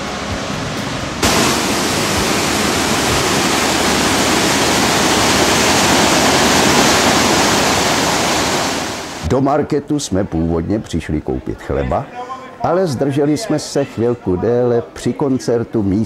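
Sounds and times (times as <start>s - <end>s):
waterfall rushing over rocks: 0.0s - 9.3s.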